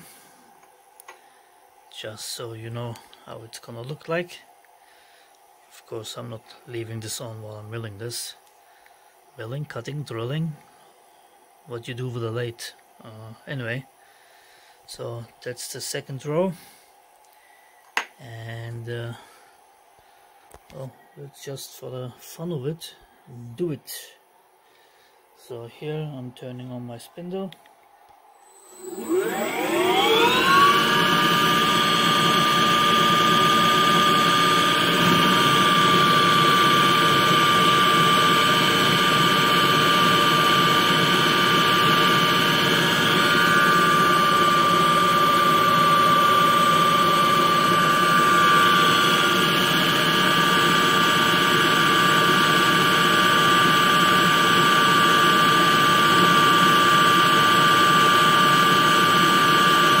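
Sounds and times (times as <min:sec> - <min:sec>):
high-pitched motor whine: 0:28.3 - 1:00.0.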